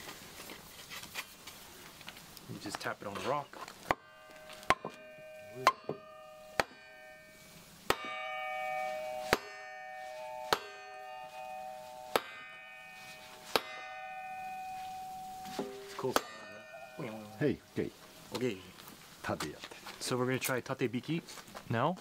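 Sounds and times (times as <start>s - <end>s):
steel blade ringing: 3.3s - 17.8s.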